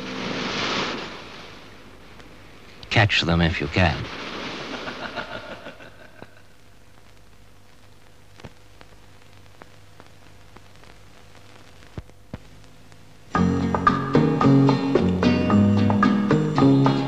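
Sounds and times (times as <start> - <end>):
low hum: 0.0 - 13.7
film soundtrack hiss: 0.0 - 17.0
clicks and pops from film: 6.9 - 13.1.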